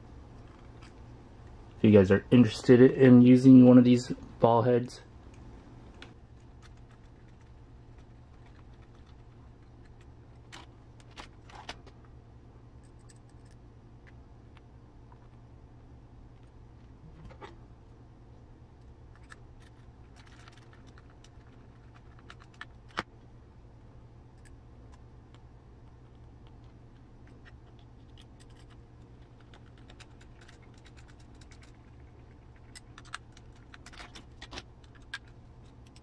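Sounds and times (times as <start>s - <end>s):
low steady hum: 0.0s - 36.0s.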